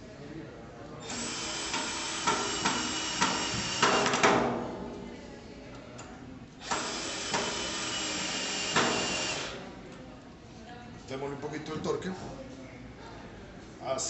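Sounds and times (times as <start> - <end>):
drill driving screw into wood: 1.0 - 4.4, 6.6 - 9.6.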